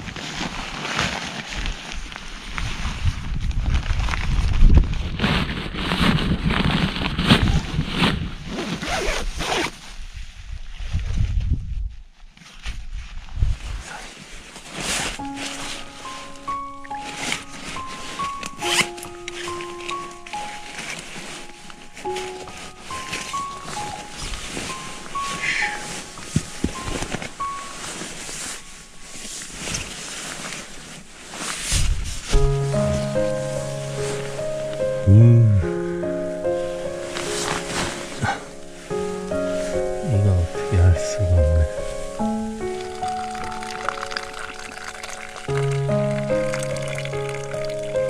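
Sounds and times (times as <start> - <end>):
fabric and bag crinkling: 0.0 - 10.0, 13.6 - 35.3, 36.1 - 40.1, 41.5 - 48.0
zipper rasping: 8.5 - 9.7
soft background music: 14.8 - 31.6, 32.3 - 48.0.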